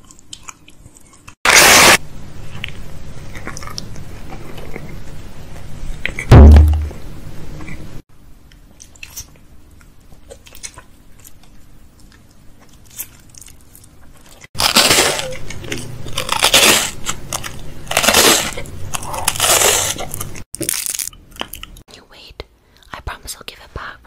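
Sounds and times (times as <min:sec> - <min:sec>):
crunchy bar being chewed: 0:00.0 - 0:01.4, 0:02.5 - 0:06.3, 0:08.8 - 0:21.8
wet mouth chewing sounds: 0:00.0 - 0:01.4, 0:02.5 - 0:06.3.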